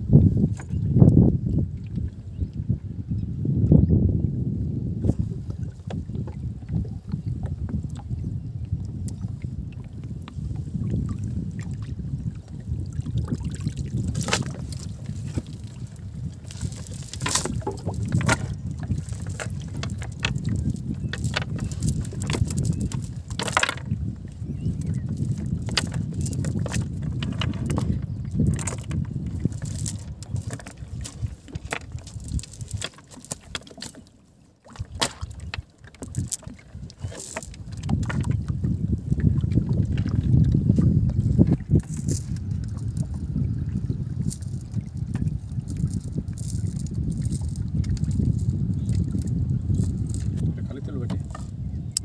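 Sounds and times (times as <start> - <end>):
net clicking and knocking on deck: 14.1 - 15.4, 16.5 - 23.9, 25.2 - 34.0, 34.7 - 38.3.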